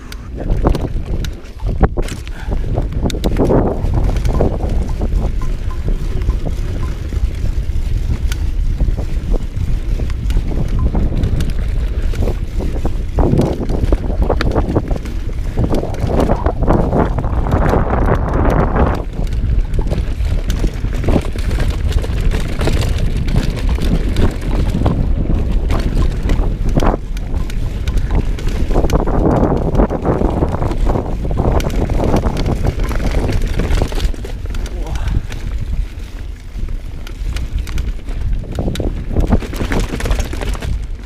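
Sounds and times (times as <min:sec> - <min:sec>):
bike clicks and rattles: 0:00.0 - 0:41.0
bike tyre and suspension rumble: 0:00.0 - 0:41.0
wind buffeting microphone: 0:00.0 - 0:41.0.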